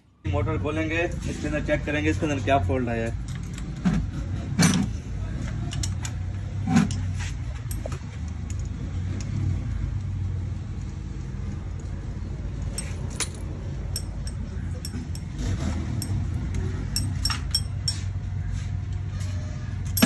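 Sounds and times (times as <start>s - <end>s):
metal spanner clinking on bolts: 5.7s - 9.4s, 12.6s - 18.2s, 19.8s - 20.0s.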